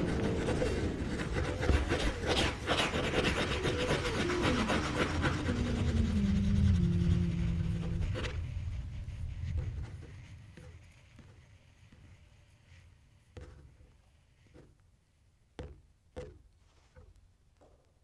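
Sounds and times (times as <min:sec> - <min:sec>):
faint scratchy texture: 0:00.0 - 0:15.2
dense low rumble: 0:04.9 - 0:10.6.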